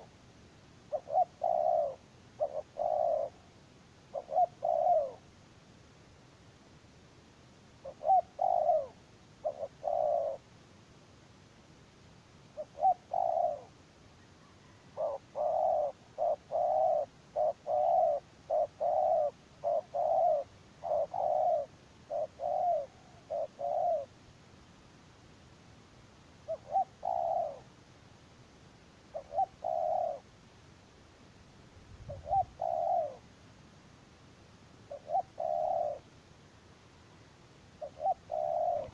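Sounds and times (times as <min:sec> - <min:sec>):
doves cooing: 0:00.9 - 0:03.5, 0:04.1 - 0:05.3, 0:07.8 - 0:10.4, 0:12.6 - 0:13.8, 0:14.4 - 0:24.2, 0:26.5 - 0:27.7, 0:29.1 - 0:30.3, 0:32.1 - 0:33.2, 0:34.9 - 0:36.1, 0:37.8 - 0:38.9.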